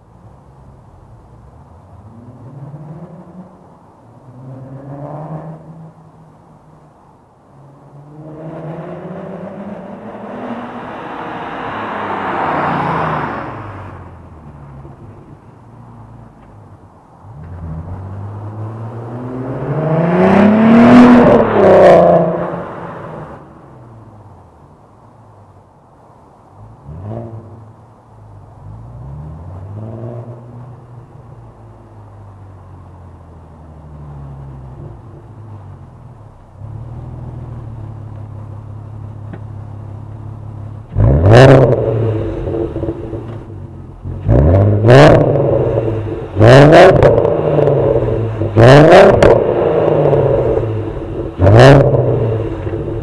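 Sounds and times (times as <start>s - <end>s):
car engine revving: 17.2s - 23.7s, 28.6s - 53.0s.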